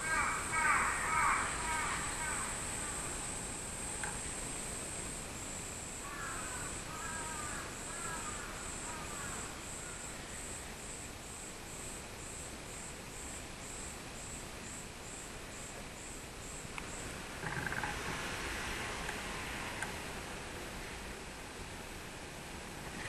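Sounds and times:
bird calling: 0.0s - 4.1s
cicada pulsing call: 0.0s - 23.0s.

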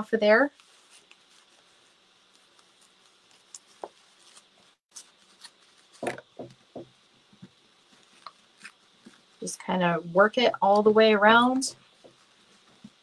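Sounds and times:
paper and fabric rustling: 0.3s - 6.5s, 7.8s - 9.6s, 10.6s - 13.0s.

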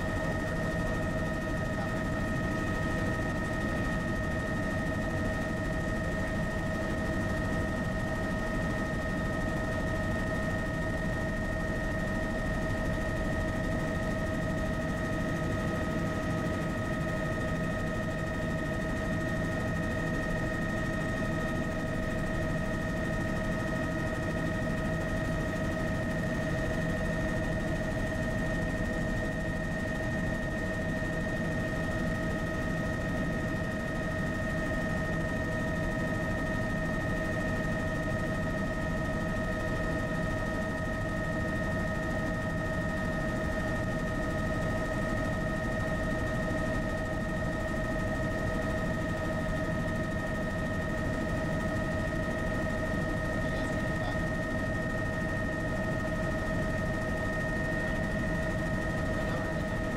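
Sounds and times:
helicopter engine and rotor rumble: 0.0s - 59.9s.

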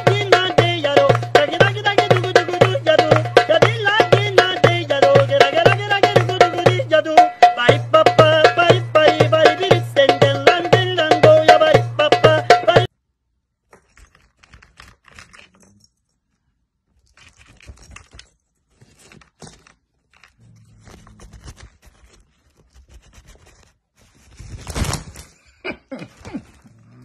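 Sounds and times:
hand-drum music with singing: 0.0s - 12.9s.

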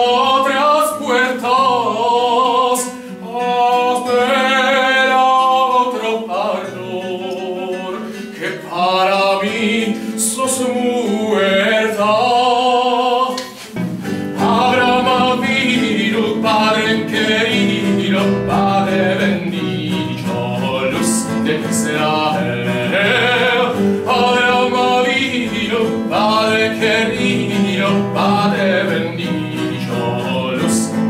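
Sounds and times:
man singing classical style: 0.0s - 31.0s
plucked classical guitar: 0.0s - 31.0s.

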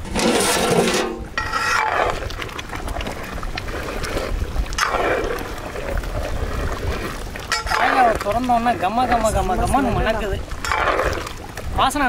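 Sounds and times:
metal ladle scraping a pot: 0.0s - 2.5s, 4.8s - 5.4s, 7.5s - 8.2s, 10.6s - 11.3s
wind rumble on microphone: 0.0s - 12.0s.

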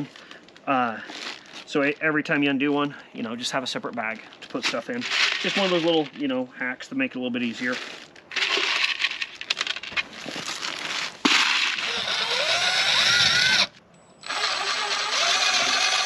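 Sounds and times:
screws and caps rattling: 4.4s - 6.2s, 7.7s - 10.8s, 11.4s - 16.0s
impact driver driving screws: 11.4s - 16.0s.

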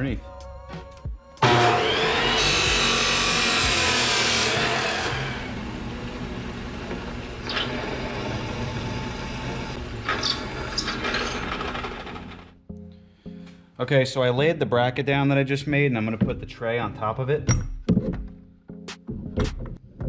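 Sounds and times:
chop saw cutting steel: 1.4s - 12.5s
drill press drilling steel: 1.4s - 12.5s.

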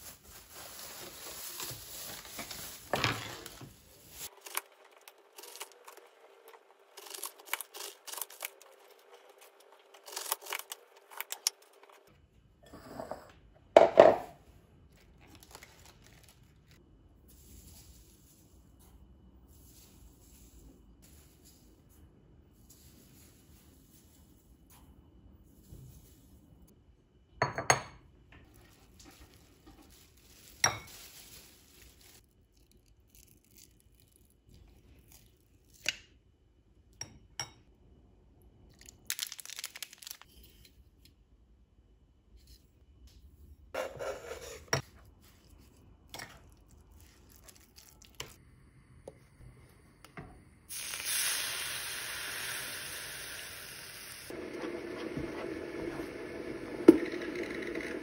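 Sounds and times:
packet crinkling: 0.0s - 4.8s, 15.2s - 16.8s, 29.9s - 34.2s, 38.8s - 40.3s
pan hissing on burner: 50.7s - 58.0s.

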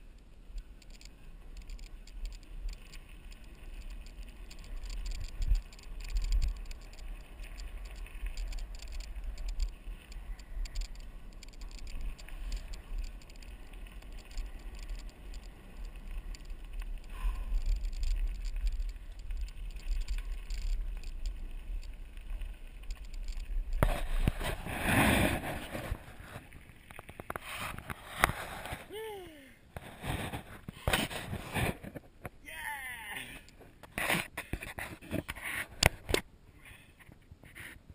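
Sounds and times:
bike tyres crunching on gravel: 0.2s - 28.9s.

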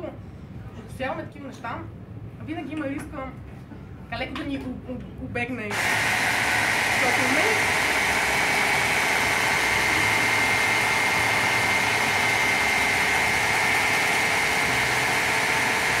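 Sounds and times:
immersion blender whining: 5.7s - 16.0s.

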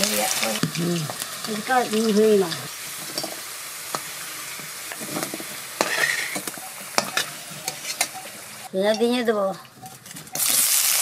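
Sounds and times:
potatoes sizzling in oil: 0.0s - 11.0s
metal spatula scraping a pan: 2.5s - 8.7s.

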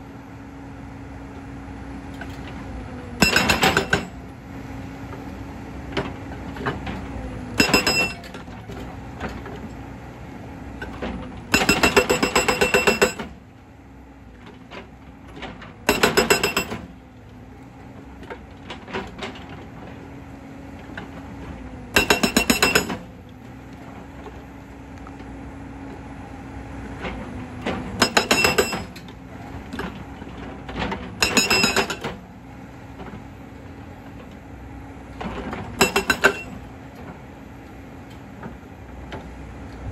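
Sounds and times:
diesel engine running: 0.0s - 39.9s
hydraulic breaker hammering rock: 3.2s - 4.2s, 7.6s - 8.4s, 11.5s - 13.4s, 15.8s - 17.0s, 21.9s - 23.2s, 27.7s - 29.1s, 30.9s - 32.2s, 35.7s - 36.7s.

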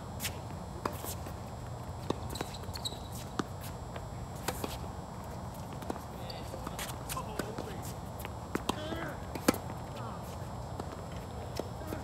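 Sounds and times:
tennis ball struck by rackets: 8.5s - 9.7s.

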